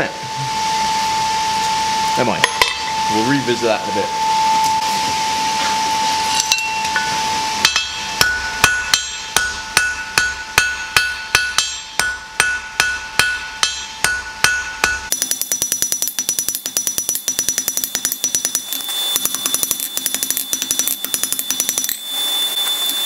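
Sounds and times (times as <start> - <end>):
hammer striking steel on anvil: 2.4 - 2.9, 6.4 - 22.0.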